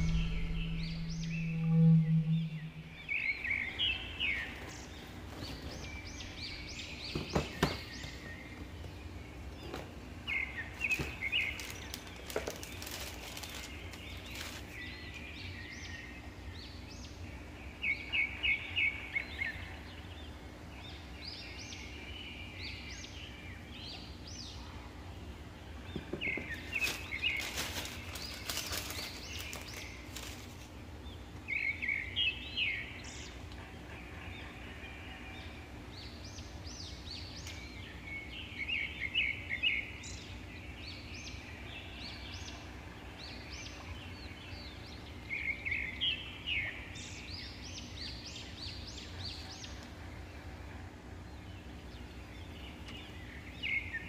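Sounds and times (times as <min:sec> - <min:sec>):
faint steady hum: 0:00.0 - 0:54.0
small birds chirping: 0:00.0 - 0:54.0
tissue paper rustling: 0:11.4 - 0:14.8, 0:26.7 - 0:30.7.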